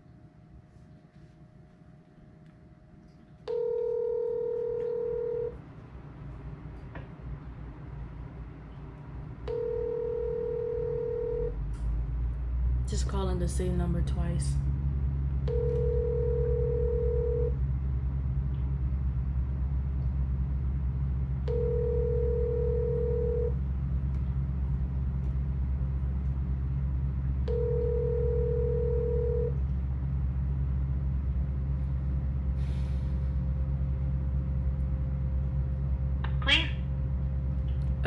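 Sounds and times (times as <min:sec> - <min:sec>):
steady low hum: 0:00.0 - 0:38.0
telephone ringback tone: 0:03.5 - 0:05.6, 0:09.5 - 0:11.6, 0:15.5 - 0:17.6, 0:21.5 - 0:23.6, 0:27.5 - 0:29.6.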